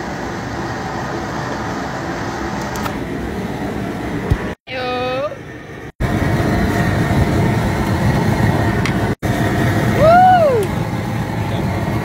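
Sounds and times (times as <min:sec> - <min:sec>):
pot boiling over burner roar: 0:00.0 - 0:12.0
voice-like ooh: 0:09.9 - 0:10.8.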